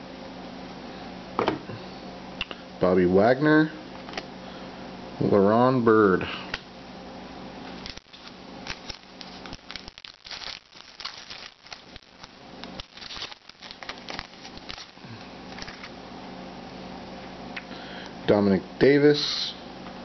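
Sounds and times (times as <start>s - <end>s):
foil wrapper crinkling: 7.7s - 16.0s.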